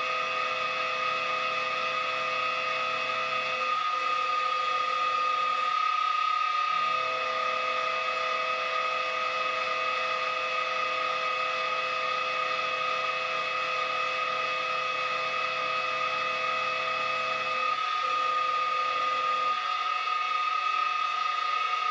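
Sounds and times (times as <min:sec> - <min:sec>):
milling machine high-pitched whine: 0:00.0 - 0:21.9.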